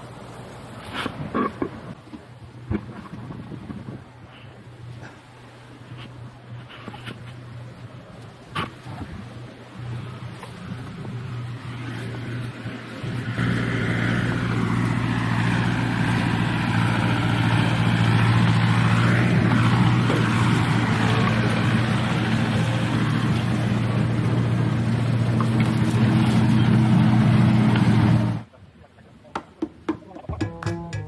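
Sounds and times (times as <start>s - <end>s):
tractor engine running: 13.1s - 28.4s.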